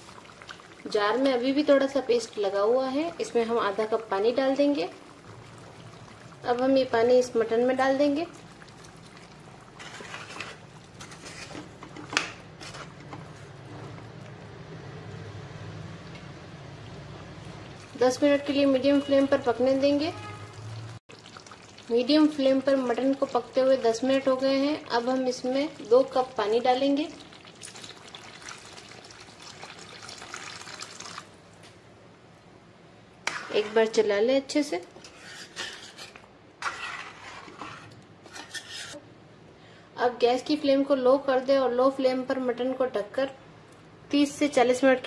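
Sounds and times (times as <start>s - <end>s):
water pouring into curry: 0.0s - 11.1s, 20.6s - 31.5s
spoon stirring and scraping pan: 8.2s - 14.1s, 33.2s - 34.1s, 34.9s - 39.0s.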